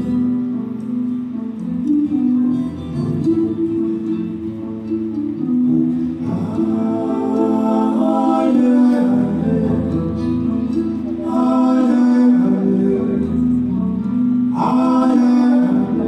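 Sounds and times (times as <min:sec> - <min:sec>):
guitar music: 0:00.0 - 0:16.0
person singing long held notes: 0:05.6 - 0:16.0.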